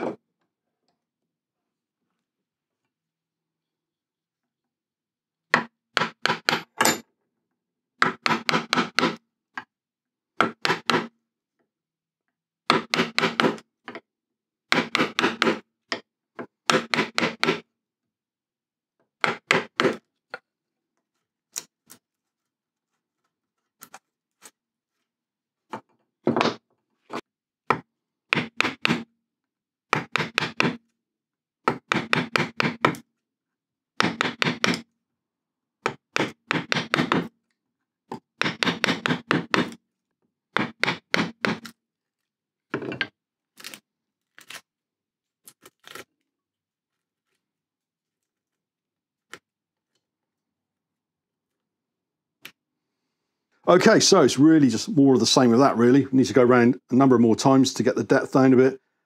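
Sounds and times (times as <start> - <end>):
chisel striking wood: 5.5 - 7.0, 8.0 - 9.7, 10.4 - 11.2, 12.6 - 14.0, 14.7 - 17.6, 19.2 - 20.4, 27.7 - 29.1, 29.9 - 30.8, 31.6 - 33.0, 34.0 - 34.9, 35.8 - 37.4, 38.1 - 39.8, 40.5 - 41.7.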